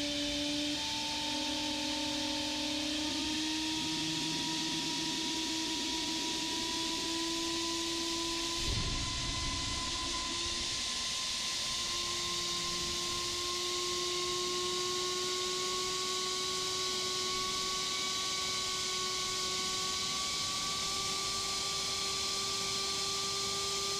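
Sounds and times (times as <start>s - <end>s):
drone motor whine: 0.0s - 23.9s
low rumble: 8.5s - 11.2s.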